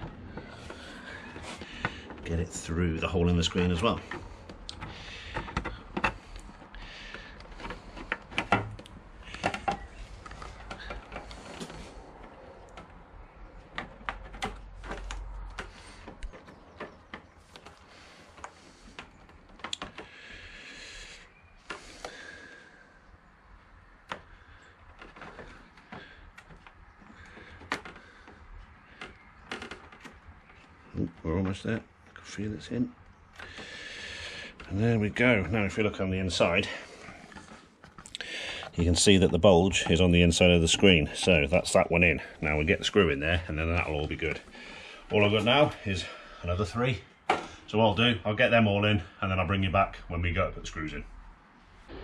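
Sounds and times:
scraping: 0:00.0 - 0:48.1
plastic panels knocking together: 0:03.2 - 0:20.5, 0:23.8 - 0:32.2, 0:47.2 - 0:47.6.

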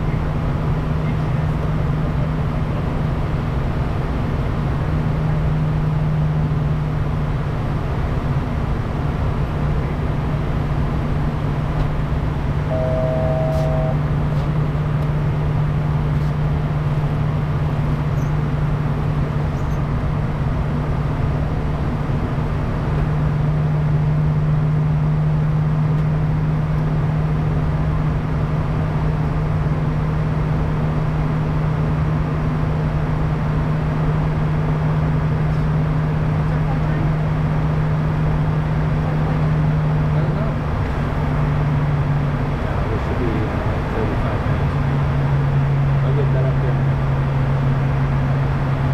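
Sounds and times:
jet cabin engine and airflow rush: 0:00.0 - 0:48.9
short electronic tone: 0:12.7 - 0:14.2.

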